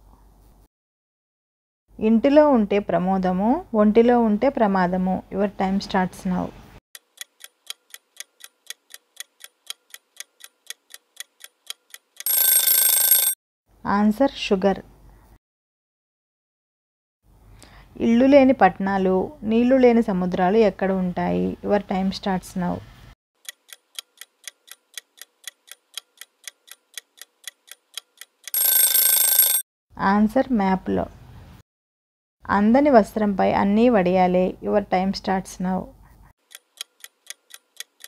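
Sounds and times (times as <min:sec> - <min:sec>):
clock ticking: 0:07.0 - 0:13.3, 0:23.4 - 0:29.6, 0:36.4 - 0:38.0.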